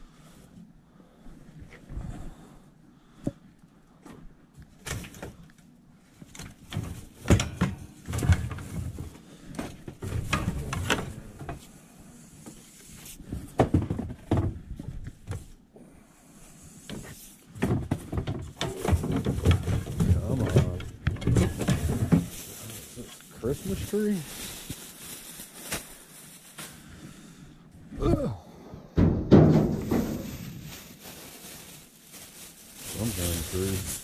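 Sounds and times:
wood and metal knocks and scrapes: 6.3 - 11.6, 17.6 - 22.4, 29.0 - 30.3.

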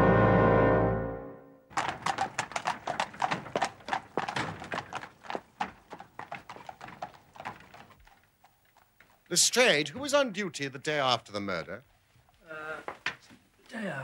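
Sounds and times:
horse hooves clip-clopping on street: 1.7 - 10.2.

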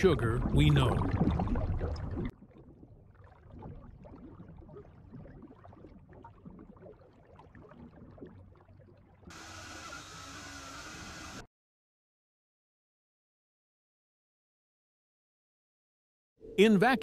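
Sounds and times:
low rumbling with crackle: 0.0 - 8.6
steam hissing from pipes: 9.3 - 11.4.

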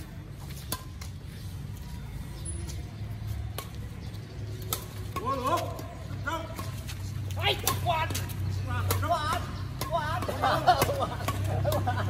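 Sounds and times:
racket hitting shuttlecock: 0.6 - 1.2, 4.6 - 12.0.

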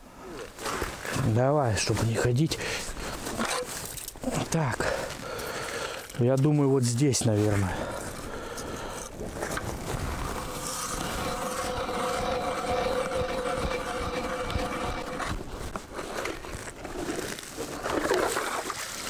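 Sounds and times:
ice auger grinding: 9.0 - 19.0.

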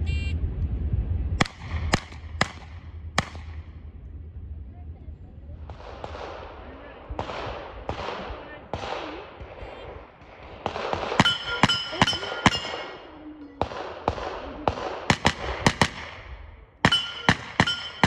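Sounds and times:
rapid gunshots: 1.4 - 3.7, 5.6 - 18.0
metallic ring: 11.2 - 13.2, 16.9 - 18.0.

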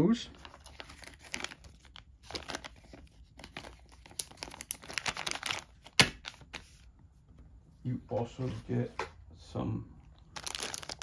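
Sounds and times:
bag crinkling and rustling: 0.3 - 6.8, 10.2 - 11.0.

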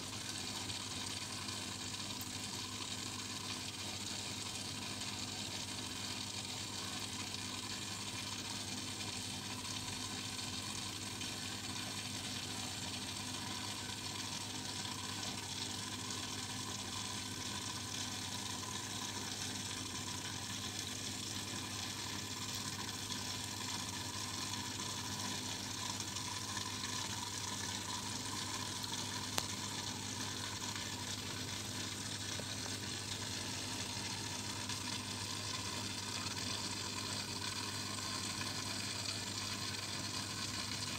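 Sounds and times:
fizzing water and air bubbles: 13.1 - 40.9.

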